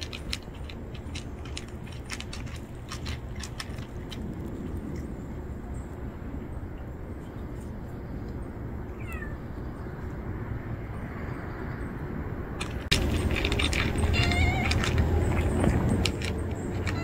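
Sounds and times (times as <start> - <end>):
low background rumble: 0.0 - 10.3, 12.3 - 17.0
cat meowing: 8.9 - 9.4, 13.9 - 15.1, 16.7 - 17.0.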